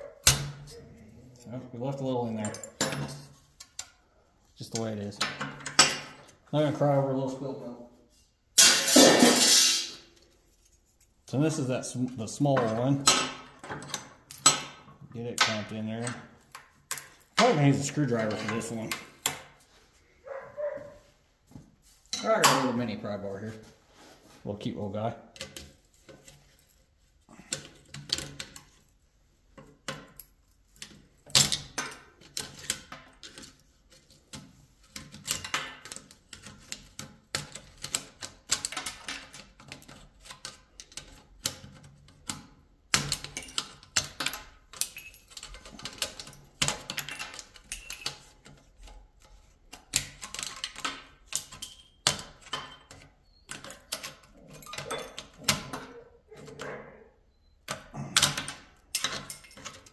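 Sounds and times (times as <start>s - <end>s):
metal tools clicking and scraping: 2.2s - 4.0s, 8.1s - 11.1s, 12.3s - 19.4s, 29.6s - 59.9s.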